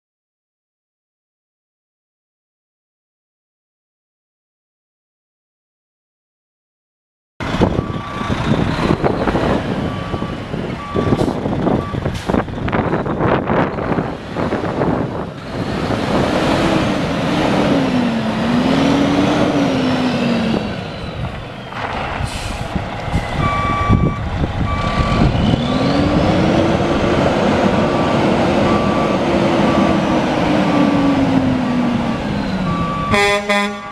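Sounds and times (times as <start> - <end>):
diesel truck engine running: 7.4 - 33.9
brief air hiss: 22.2 - 23.3
backup alarm beeping: 23.4 - 25.3.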